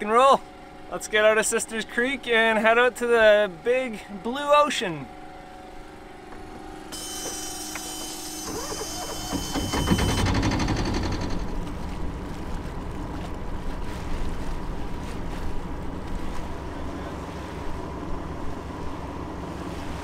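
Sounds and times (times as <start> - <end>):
rush of wind and water: 11.1 - 20.0.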